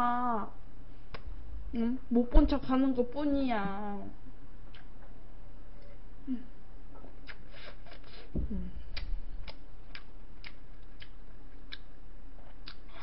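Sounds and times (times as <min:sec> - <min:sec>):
low electrical hum: 0:00.0 - 0:13.0
mouth clicks and smacks eating: 0:04.7 - 0:05.1, 0:07.0 - 0:08.2, 0:08.9 - 0:13.0.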